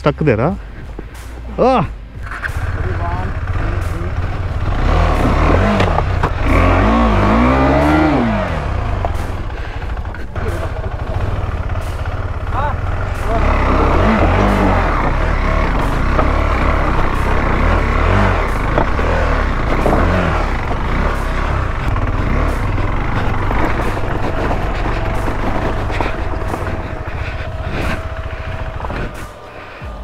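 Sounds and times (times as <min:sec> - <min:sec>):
motorcycle engine revving: 0:00.8 - 0:30.0
sharp knocks from rough ground: 0:05.2 - 0:06.7, 0:13.8 - 0:29.3.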